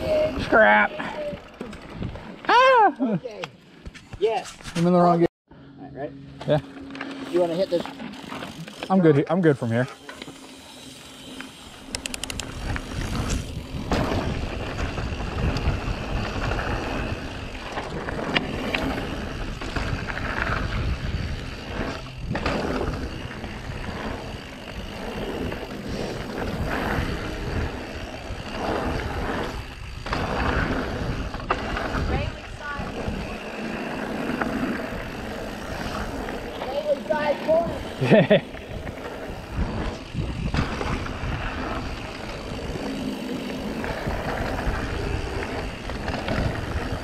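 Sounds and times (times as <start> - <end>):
wind rumbling on microphone: 0.0 - 2.4, 11.9 - 36.9, 37.5 - 47.0
bike rattling and clicking: 0.0 - 4.4, 6.2 - 47.0
bike tyres on dirt: 0.0 - 5.2, 6.2 - 47.0.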